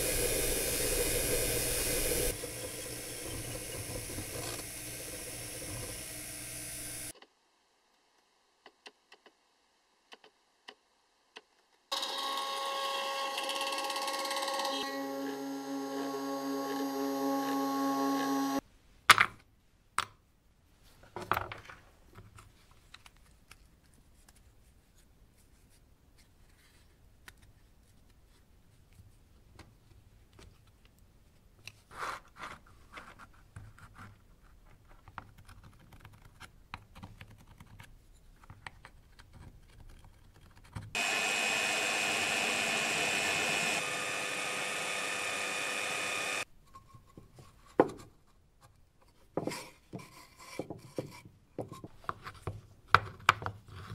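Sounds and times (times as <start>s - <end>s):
electric drill boring into wood: 0.0s - 7.1s, 11.9s - 18.6s, 41.0s - 46.5s.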